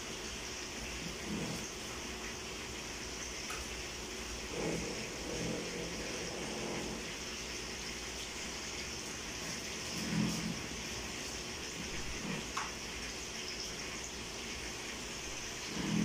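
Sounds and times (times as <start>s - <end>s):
oil sizzling as fish fries: 0.0s - 16.0s.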